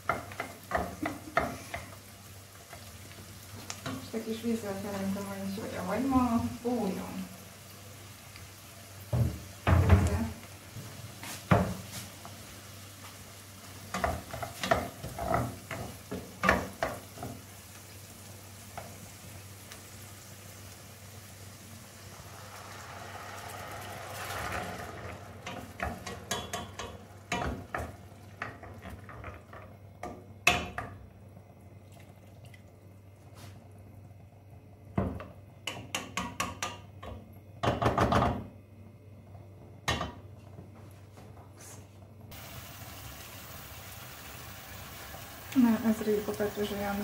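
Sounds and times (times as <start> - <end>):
onions sizzling in a pan: 0.0 - 31.5, 41.6 - 47.0
ingredients poured into pan: 21.3 - 26.3
spoon knocking against pan: 35.0 - 38.2.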